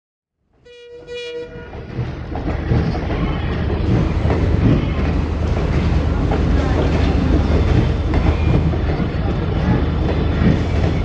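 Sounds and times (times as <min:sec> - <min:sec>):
train horn: 0:00.6 - 0:01.8.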